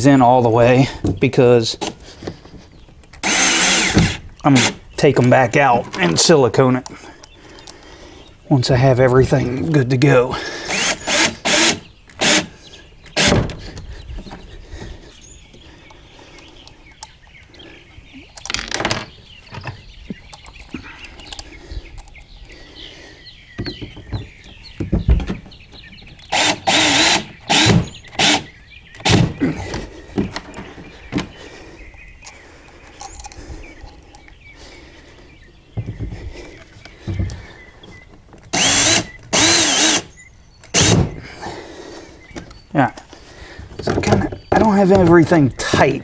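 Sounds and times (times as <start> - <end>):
sharp knocks and clicks: 23.6 - 26.3.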